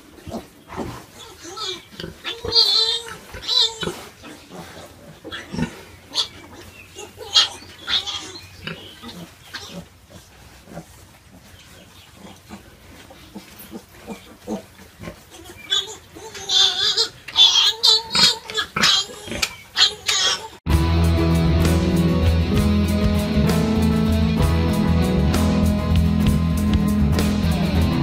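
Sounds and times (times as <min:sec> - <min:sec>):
pig grunts: 0:00.0 - 0:06.4, 0:07.0 - 0:20.6
piglets squealing: 0:01.1 - 0:10.0, 0:13.7 - 0:20.6.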